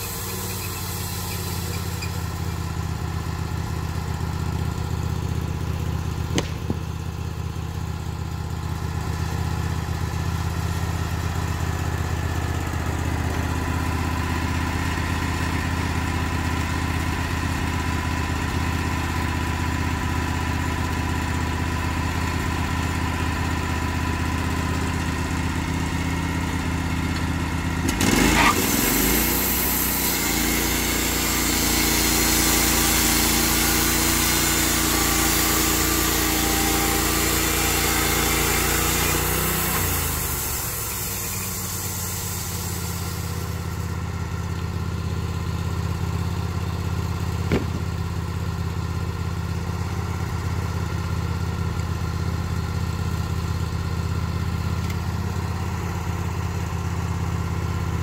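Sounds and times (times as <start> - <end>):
engine throttle clatter: 0.0 - 7.4, 23.5 - 44.5, 46.6 - 48.8
sawmill gas engine running: 0.0 - 58.0.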